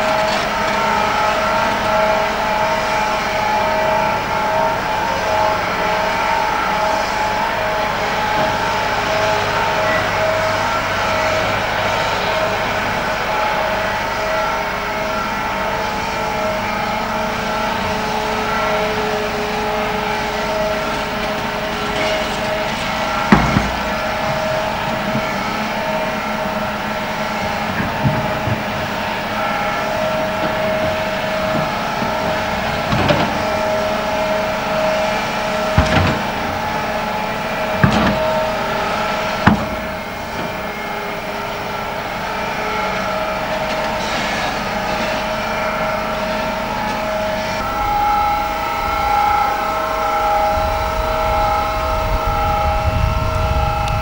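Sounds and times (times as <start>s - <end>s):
deep machine rumble: 0.0s - 54.0s
excavator engine and hydraulics whine: 0.0s - 54.0s
excavator bucket knocking: 21.9s - 35.0s, 35.6s - 37.0s, 37.6s - 40.7s.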